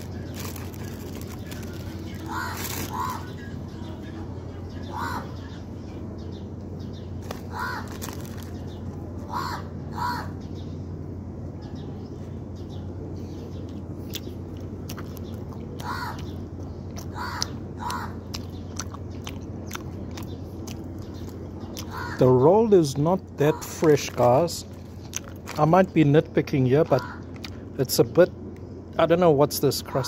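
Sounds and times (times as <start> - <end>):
person chewing bread: 0.0 - 3.3, 13.6 - 22.0, 24.7 - 25.6
steady low hum: 0.0 - 30.0
crow cawing: 2.2 - 3.4, 4.8 - 5.4, 7.3 - 8.0, 9.2 - 10.4, 15.8 - 16.3, 17.1 - 18.2, 21.9 - 22.4, 26.9 - 27.3.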